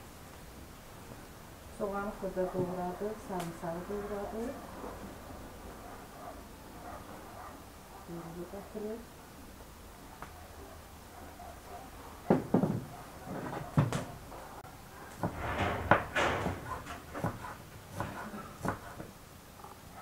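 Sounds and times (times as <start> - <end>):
knife chopping on wooden board: 15.9 - 19.1.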